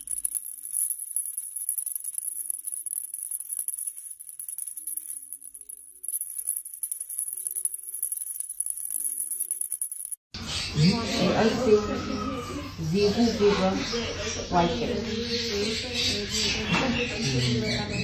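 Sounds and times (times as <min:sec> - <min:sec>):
maraca rattling: 0:00.0 - 0:10.2.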